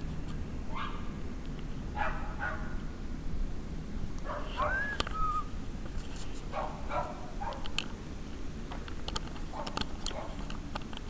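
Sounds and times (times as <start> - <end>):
dogs barking: 0.7 - 1.2, 1.9 - 2.8, 4.2 - 4.9, 6.5 - 7.8, 9.5 - 10.5
high cry: 4.5 - 5.5.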